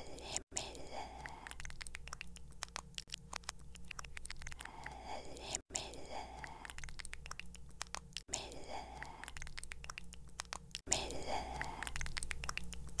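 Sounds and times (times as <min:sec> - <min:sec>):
breathy whisper hiss: 0:00.0 - 0:02.2, 0:04.5 - 0:07.1, 0:08.2 - 0:09.9, 0:10.9 - 0:12.7
wet mouth clicks and licks: 0:00.1 - 0:13.0.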